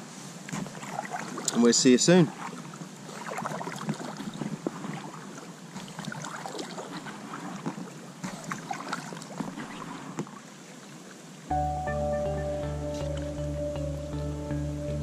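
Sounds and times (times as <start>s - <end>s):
paddle splashing in water: 0.0s - 11.3s.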